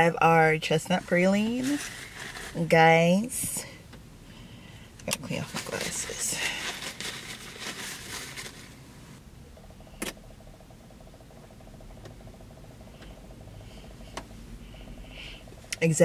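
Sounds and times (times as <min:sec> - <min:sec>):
low car cabin hum: 0:00.0 - 0:16.0
paper napkin rustling: 0:01.0 - 0:02.7, 0:05.4 - 0:08.8.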